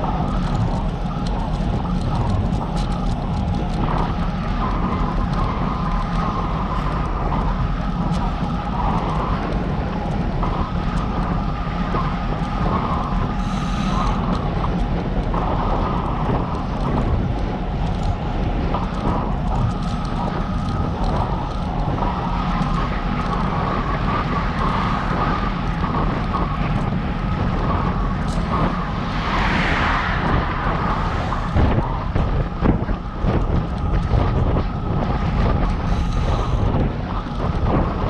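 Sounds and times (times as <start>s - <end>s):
low rumble of bicycle ride: 0.0s - 38.0s
wind rushing over microphone: 0.0s - 38.0s.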